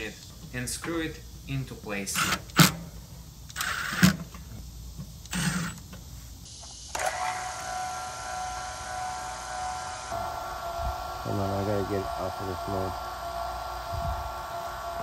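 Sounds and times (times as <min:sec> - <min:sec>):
vacuum pump humming: 0:06.9 - 0:15.0.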